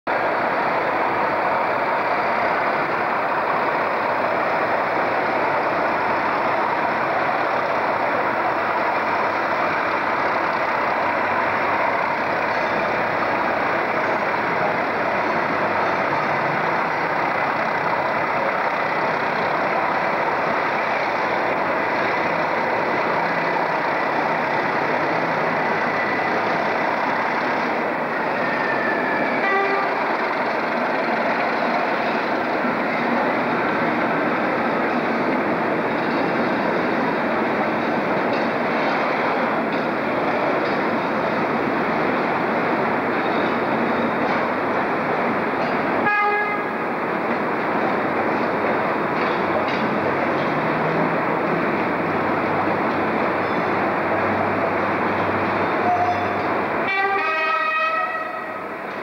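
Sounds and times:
diesel locomotive engines idling: 0.1 - 59.0.

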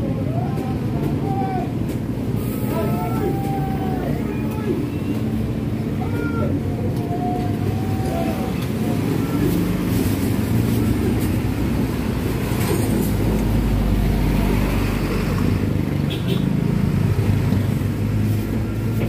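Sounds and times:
faint voices: 0.0 - 14.7
vehicle engines rumbling: 0.0 - 19.0.

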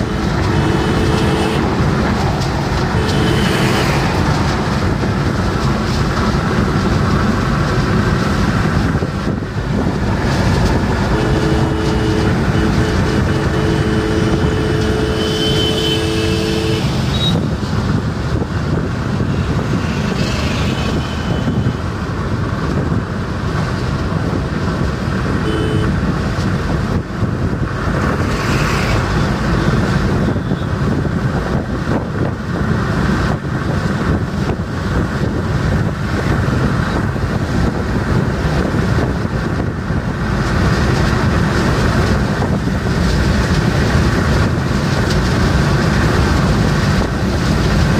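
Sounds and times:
two-tone car horn: 0.0 - 1.8, 2.9 - 4.0, 11.0 - 17.4, 25.4 - 26.0
car engine and road noise: 0.0 - 47.9.

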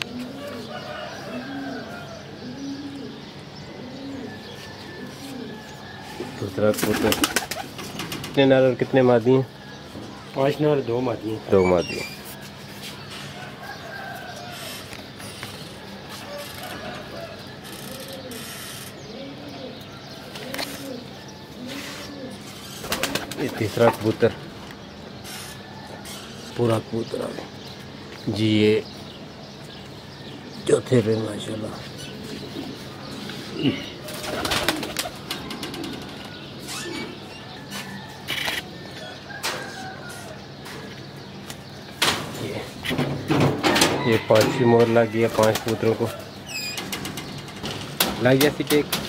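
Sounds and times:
pigeons cooing: 0.0 - 49.0
wings flapping: 6.7 - 8.4, 22.8 - 24.2, 34.0 - 36.3.

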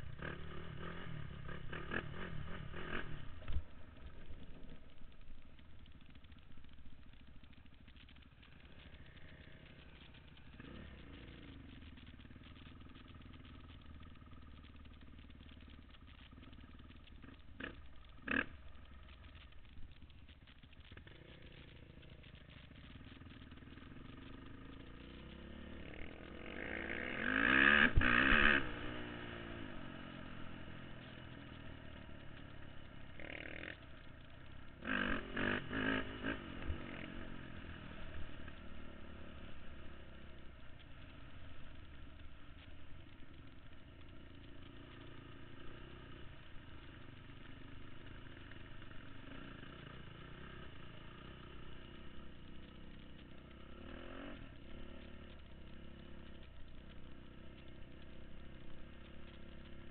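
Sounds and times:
off-road vehicle engine revving: 0.0 - 4.7, 17.0 - 18.6, 20.8 - 40.4, 44.6 - 57.3.

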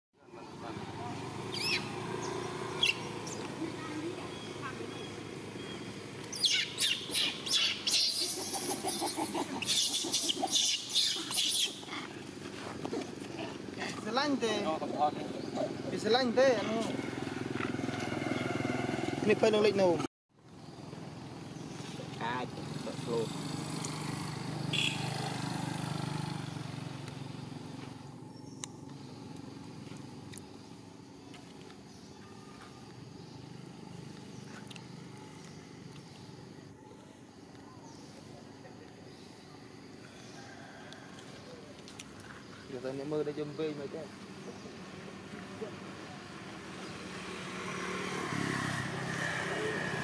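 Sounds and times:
vehicle engine passing: 0.4 - 20.1, 21.2 - 30.4, 42.7 - 50.0
monkeys screeching: 1.5 - 2.0, 6.3 - 12.2.

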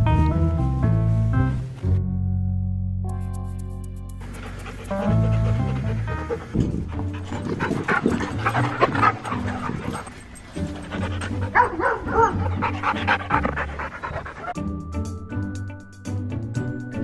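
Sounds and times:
background music: 0.0 - 17.0
dogs yipping and barking: 4.2 - 14.6.

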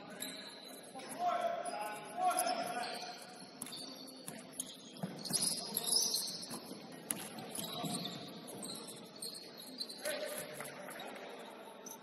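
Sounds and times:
sneakers squeaking on hardwood: 2.7 - 10.1.

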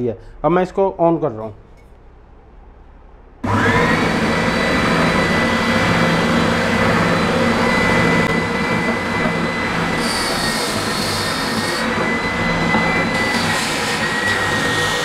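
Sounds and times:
sander motor whining: 3.4 - 15.0
wood scraping on sanding belt: 8.8 - 12.1.

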